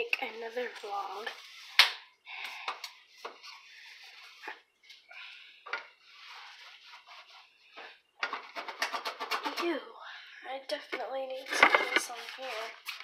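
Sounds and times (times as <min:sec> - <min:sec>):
scrubbing a stovetop: 0:06.0 - 0:07.8, 0:11.6 - 0:13.0.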